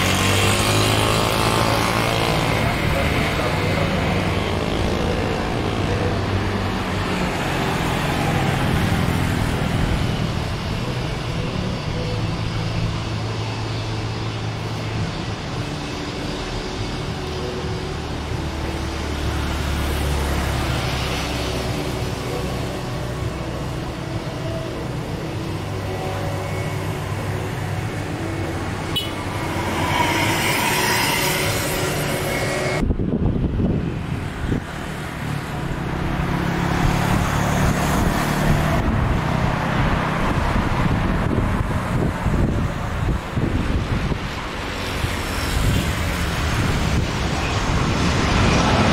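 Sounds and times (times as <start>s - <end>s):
jet engines rumbling: 0.0s - 48.9s
traffic: 0.0s - 48.9s
wind noise: 27.9s - 48.9s.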